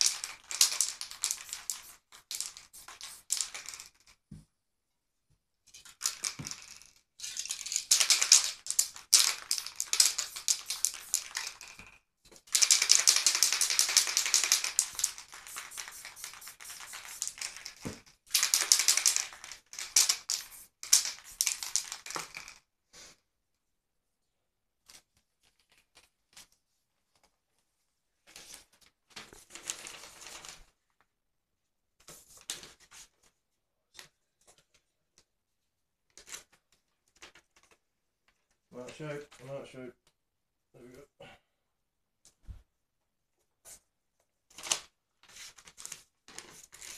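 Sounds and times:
spray paint can hissing: 0.0 - 3.8, 9.2 - 11.6, 12.6 - 19.2, 20.0 - 21.9.

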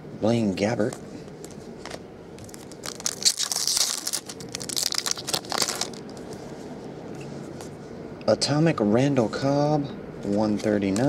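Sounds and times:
foil wrapper crinkling: 2.4 - 6.3.

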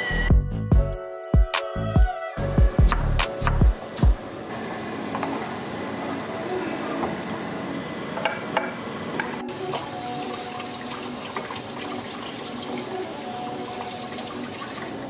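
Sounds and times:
tap running water: 4.5 - 6.2, 6.9 - 15.0.

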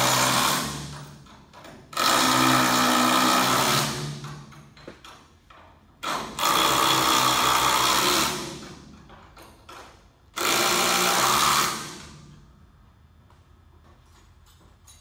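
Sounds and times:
power drill running: 2.0 - 4.1, 6.0 - 8.6, 10.4 - 12.1.

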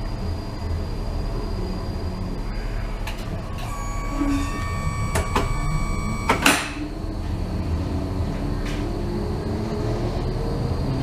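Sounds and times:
clicks: 3.1 - 6.8
door warning tone: 3.4 - 7.0
tram doors shutting knock: 3.6 - 6.8.

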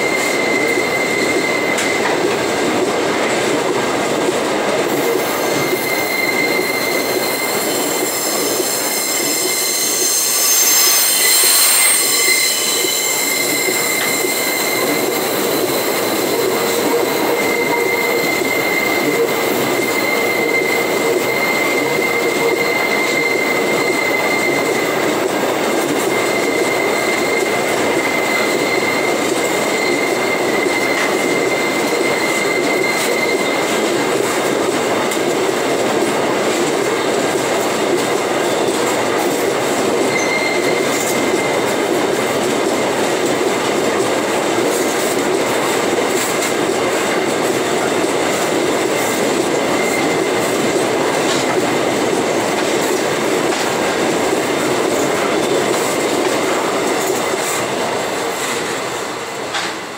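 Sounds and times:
high wheel squeal: 0.0 - 2.3, 4.9 - 59.2
train wagons rumbling and rattling: 0.0 - 59.9.

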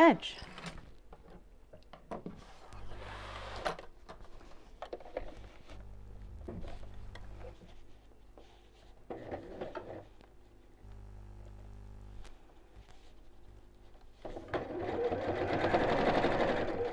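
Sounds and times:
faint low hum: 2.5 - 9.0, 10.1 - 14.3.

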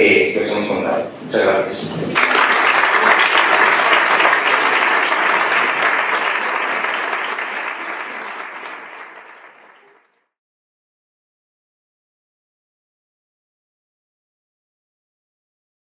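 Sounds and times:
audience applauding: 2.2 - 10.2.

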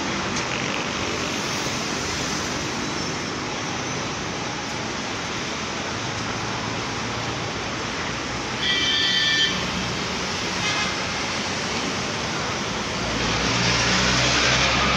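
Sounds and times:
city traffic noise: 0.0 - 14.9
vehicle horn: 8.6 - 9.8.

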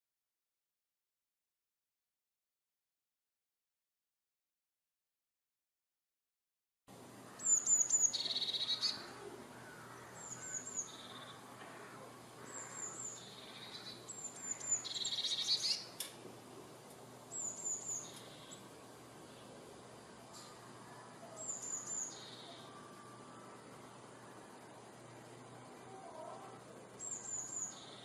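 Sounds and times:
bird singing high trills: 7.3 - 11.5, 12.4 - 15.9, 17.3 - 18.7, 21.3 - 23.6, 25.9 - 28.0.

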